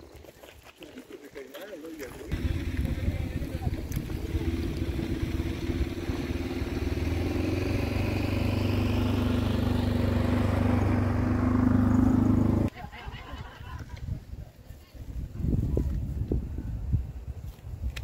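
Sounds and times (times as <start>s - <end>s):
vehicle engine running: 2.3s - 12.7s.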